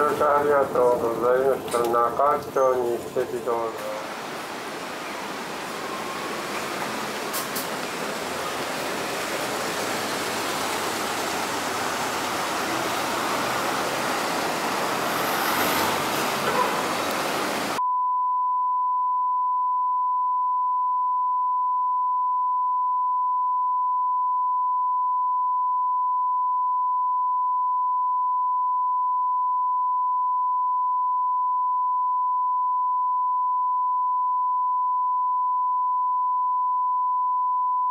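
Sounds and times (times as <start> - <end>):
sine-wave test tone: 17.8 - 37.9.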